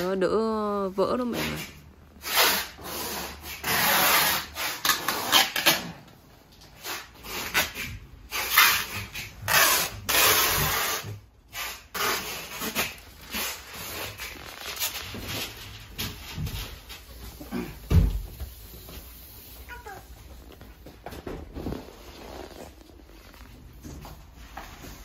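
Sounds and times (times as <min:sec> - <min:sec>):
paper rustling and crumpling: 0:12.6 - 0:17.5.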